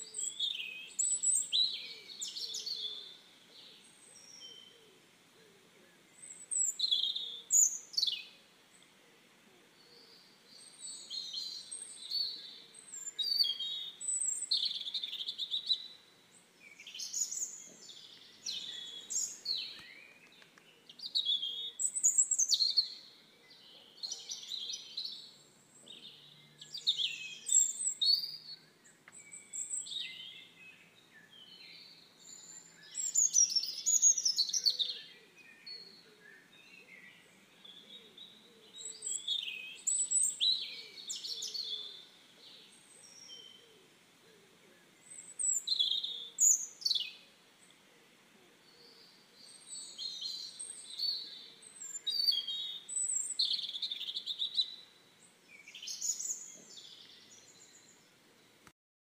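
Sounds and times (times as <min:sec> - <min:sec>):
songbirds singing: 0:00.0 - 0:58.7.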